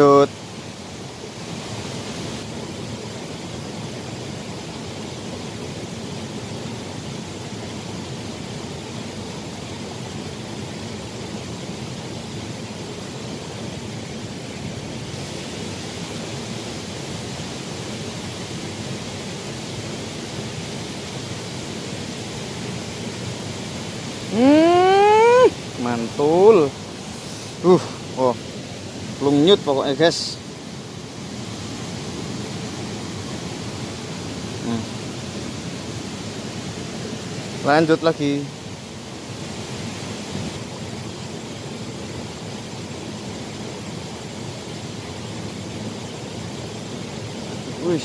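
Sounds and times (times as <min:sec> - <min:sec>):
stream water rushing: 0:00.0 - 0:48.0.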